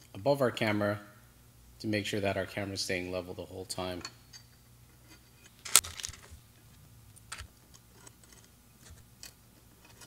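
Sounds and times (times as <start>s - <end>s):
small parts clicking: 5.6s - 6.3s.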